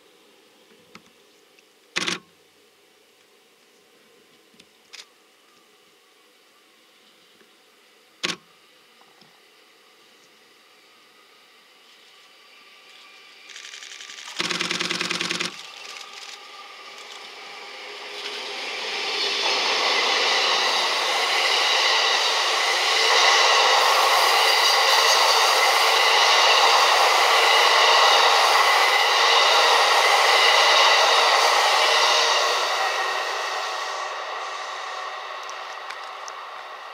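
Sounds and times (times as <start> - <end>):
train wheels rumbling on rails: 12.1 - 36.9.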